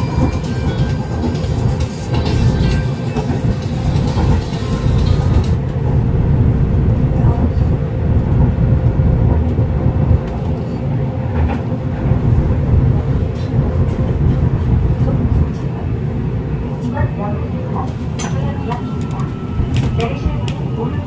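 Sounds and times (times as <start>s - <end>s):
train low rumble: 0.0s - 21.0s.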